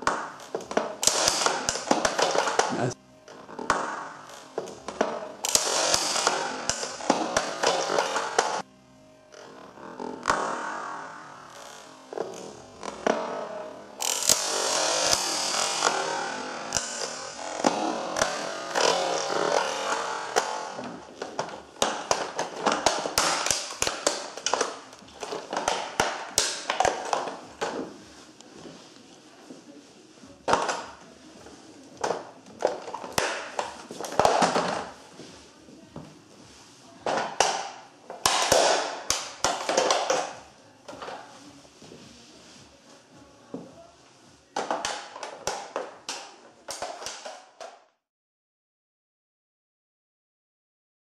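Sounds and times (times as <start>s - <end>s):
toy car creaking and clicking: 5.4s - 8.6s
toy car cracking underfoot: 16.7s - 27.9s, 37.0s - 40.4s.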